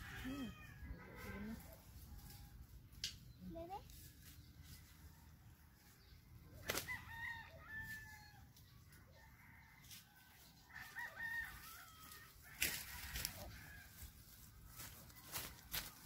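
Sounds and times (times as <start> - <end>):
rooster crowing: 0.0 - 1.4, 6.9 - 8.5, 10.7 - 14.2.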